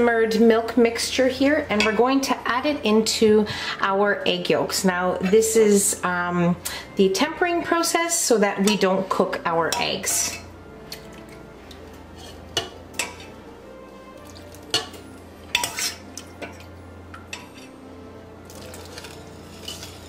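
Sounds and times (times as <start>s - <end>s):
metal ladle clinking: 9.7s - 13.4s, 14.2s - 17.7s, 18.5s - 20.0s.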